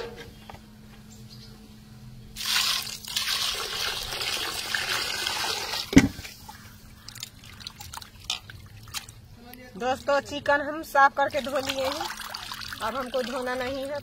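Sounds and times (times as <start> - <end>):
water pouring into metal pot: 2.4 - 6.0, 11.3 - 13.9
light splashing of water: 2.4 - 9.6.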